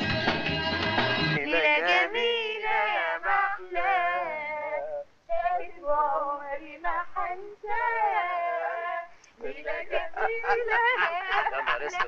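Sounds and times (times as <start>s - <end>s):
high voice singing: 6.8s - 12.0s.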